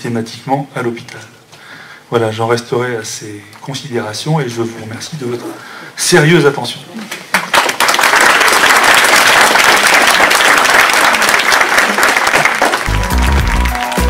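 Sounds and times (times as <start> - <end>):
audience applauding: 7.3 - 14.0
music with a beat: 12.9 - 14.0.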